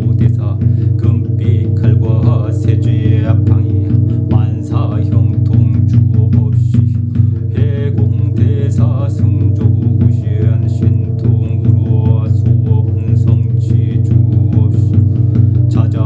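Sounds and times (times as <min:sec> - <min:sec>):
meditative drone music: 0:00.0 - 0:16.0.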